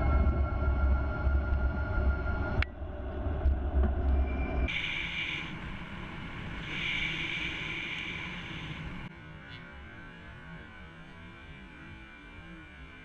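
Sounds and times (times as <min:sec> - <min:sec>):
high-pitched hiss: 0:04.7 - 0:09.1.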